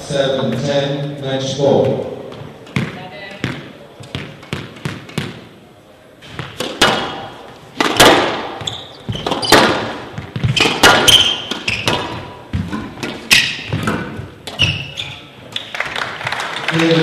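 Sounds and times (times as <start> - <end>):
squash ball smacks: 6.4 - 14.6
shoe squeaks: 8.5 - 15.7.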